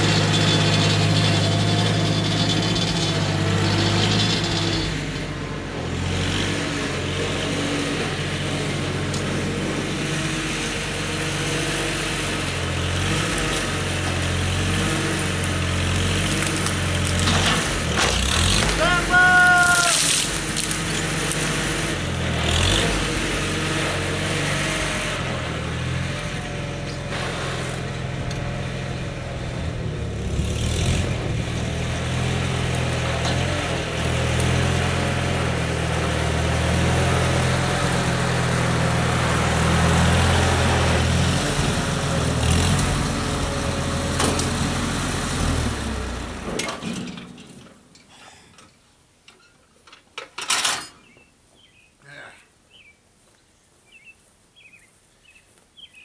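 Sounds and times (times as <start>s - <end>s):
tractor engine running: 0.0s - 47.7s.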